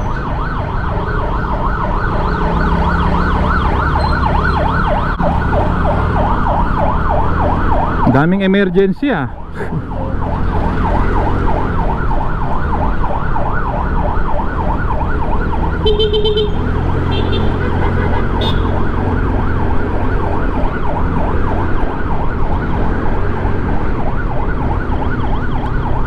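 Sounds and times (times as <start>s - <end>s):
motor scooter engine drone: 0.0s - 8.0s
ambulance siren yelping: 0.0s - 26.0s
road noise: 0.0s - 26.0s.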